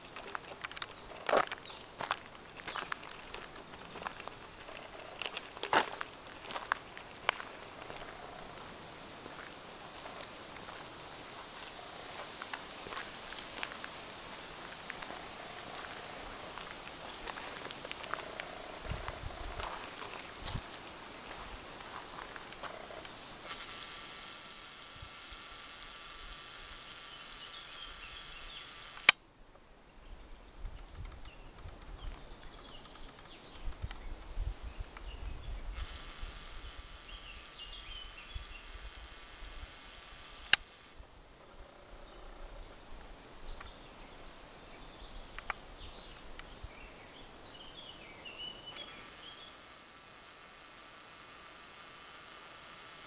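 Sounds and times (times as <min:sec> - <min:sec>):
low wind rumble: 0:07.3 - 0:23.0
bird chirps: 0:26.7 - 0:29.0, 0:30.4 - 0:38.8, 0:44.7 - 0:49.6
sharp clicks: 0:27.7 - 0:29.2, 0:30.6 - 0:34.4, 0:40.1 - 0:40.9.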